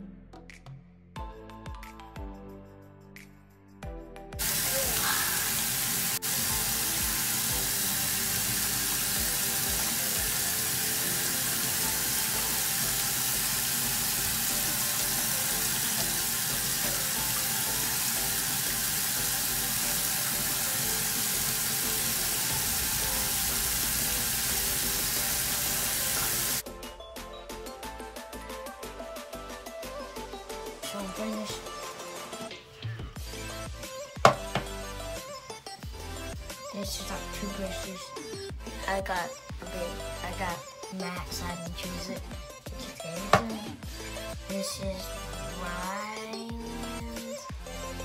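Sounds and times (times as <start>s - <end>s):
tap water running: 4.4s - 26.6s, 34.2s - 35.0s, 43.0s - 43.6s.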